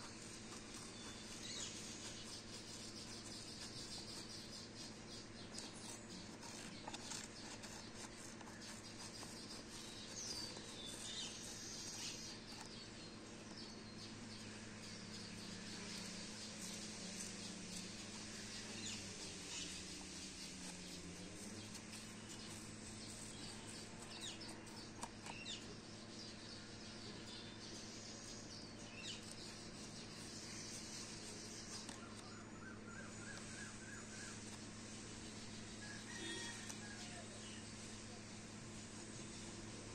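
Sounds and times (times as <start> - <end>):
scissors cutting paper: 0.0 - 12.8, 15.1 - 25.5
birds chirping faintly: 0.0 - 39.9
steady low hum: 0.0 - 39.9.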